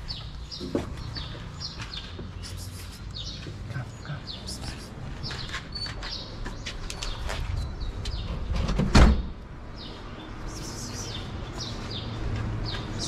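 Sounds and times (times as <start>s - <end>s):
small birds chirping: 0.0s - 8.7s, 9.7s - 13.0s
van door thump: 8.6s - 9.4s.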